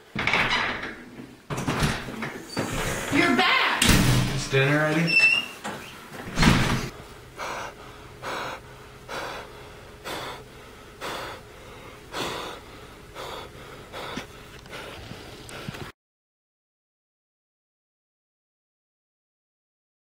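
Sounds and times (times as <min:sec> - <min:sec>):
person breathing heavily: 0:06.9 - 0:15.9
person gasping: 0:07.4 - 0:15.9.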